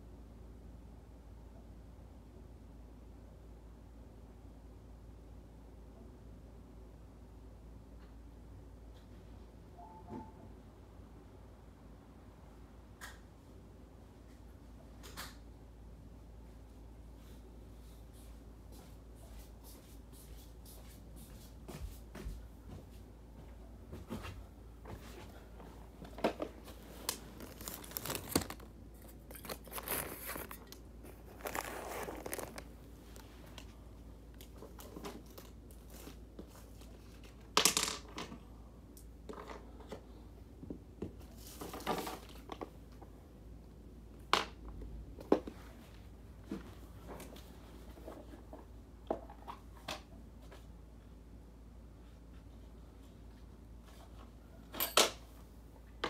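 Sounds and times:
cardboard and paper packaging rustling: 24.9s - 33.8s.

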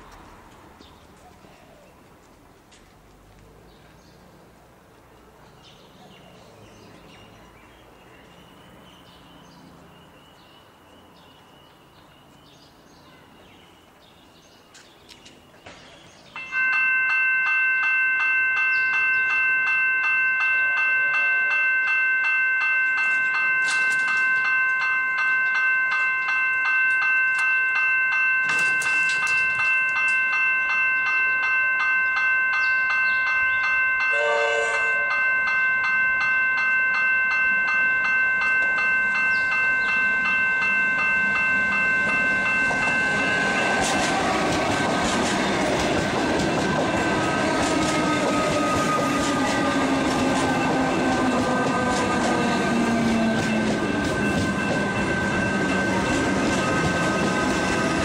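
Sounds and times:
level crossing bell ringing: 16.4s - 58.0s.

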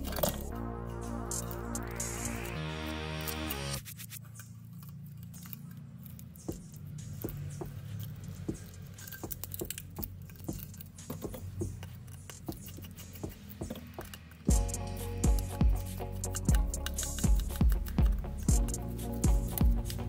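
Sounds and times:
low steady hum: 0.0s - 11.4s
small tools clicking and tapping: 4.2s - 20.0s.

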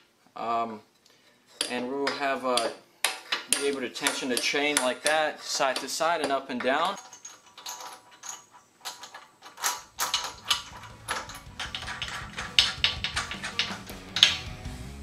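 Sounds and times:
ratchet wrench clicking: 9.0s - 14.4s.

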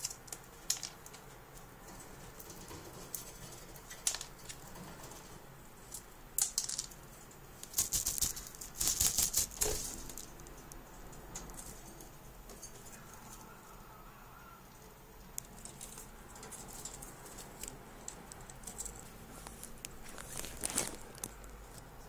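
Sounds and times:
claws clicking on metal cage bars: 15.3s - 21.9s.

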